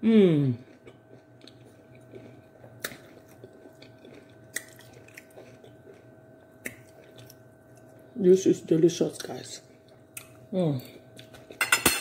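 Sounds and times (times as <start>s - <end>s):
person chewing food: 0.6s - 8.1s, 9.7s - 11.6s.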